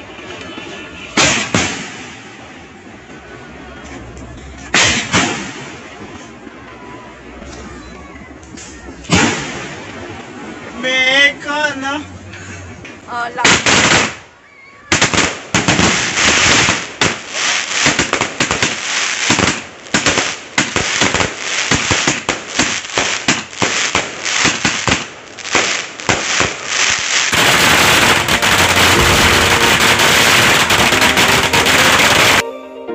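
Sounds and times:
fireworks shots and crackling: 0.6 - 2.5, 4.7 - 6.2, 8.9 - 10.2, 13.3 - 14.3, 14.9 - 32.4
dense steady hiss: 8.5 - 14.4.

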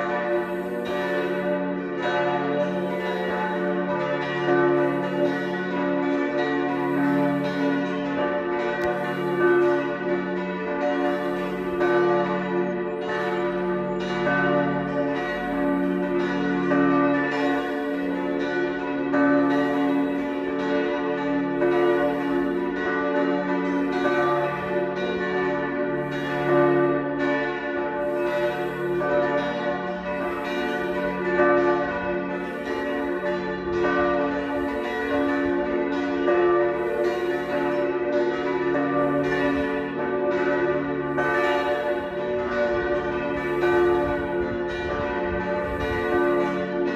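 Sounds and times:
church bells ringing: 0.0 - 46.9.

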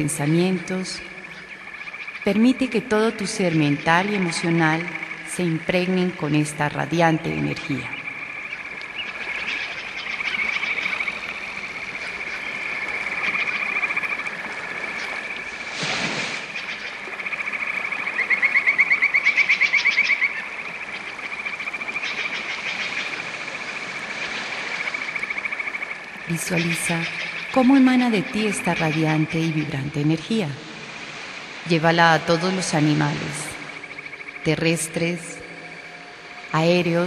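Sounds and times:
frogs trilling: 0.0 - 37.0.

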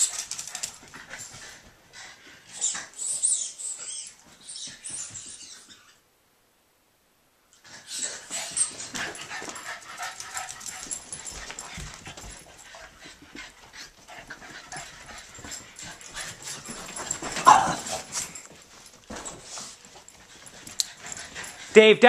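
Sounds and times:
paws scuffling and clicking: 0.0 - 5.9, 7.6 - 21.8
dogs play-fighting: 0.0 - 6.0, 7.6 - 21.8
dog crying: 17.4 - 18.1.

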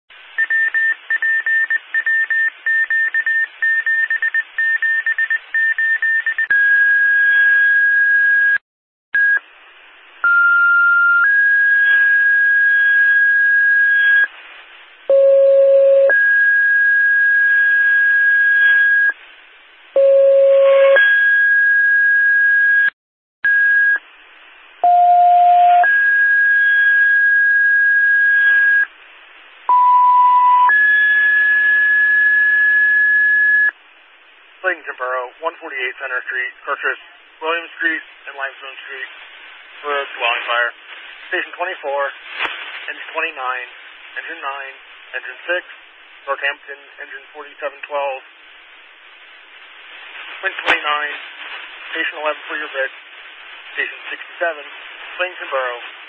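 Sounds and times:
two-tone pager tones: 0.4 - 6.8, 29.7 - 31.0
radio hiss: 34.3 - 56.0.

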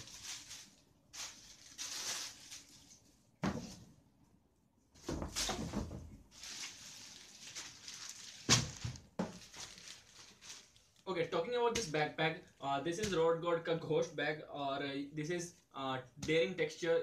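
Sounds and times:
plastic wrapping rustling: 0.0 - 3.8, 5.0 - 13.2.

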